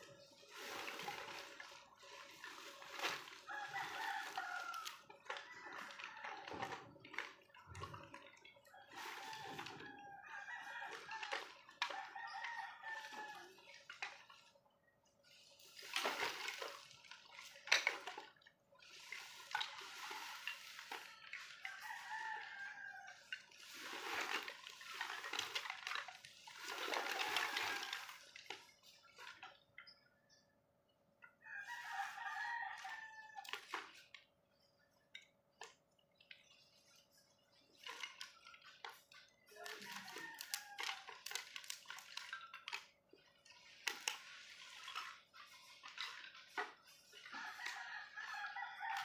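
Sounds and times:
plastic sacks rustling: 0.0 - 5.0, 23.6 - 29.4
roosters crowing: 3.0 - 7.0, 8.7 - 13.6, 19.9 - 24.2, 26.7 - 28.3, 31.4 - 33.5, 39.5 - 41.4, 47.2 - 49.0.

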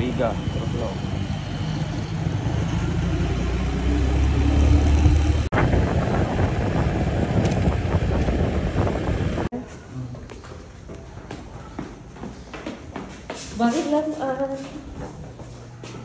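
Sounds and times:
vehicle engine rumbling: 0.0 - 9.5.

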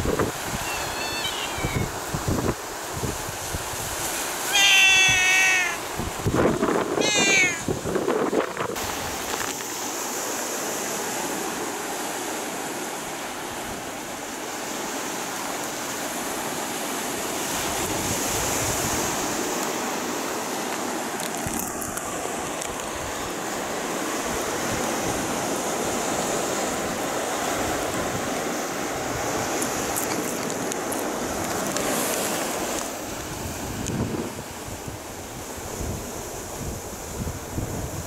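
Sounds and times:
wind on microphone: 0.0 - 9.7, 17.4 - 19.6, 24.1 - 38.0
sea surf washing over rocks: 0.0 - 38.0.

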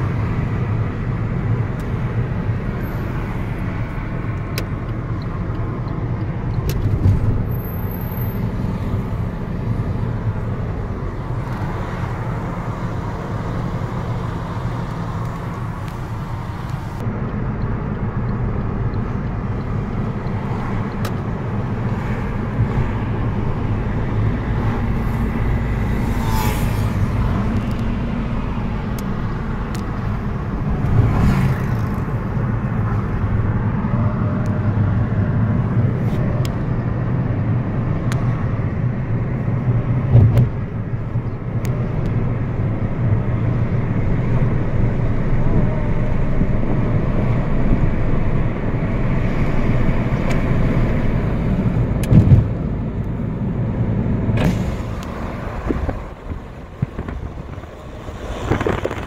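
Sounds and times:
car engine and road hum: 0.0 - 59.0
car thumps: 52.0 - 52.6.

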